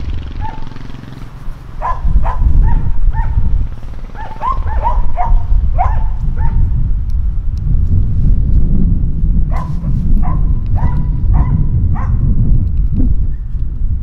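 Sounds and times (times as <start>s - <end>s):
low rumble: 0.0s - 14.0s
dog barking: 0.4s - 0.7s, 1.8s - 3.5s, 4.1s - 6.7s, 9.5s - 12.2s.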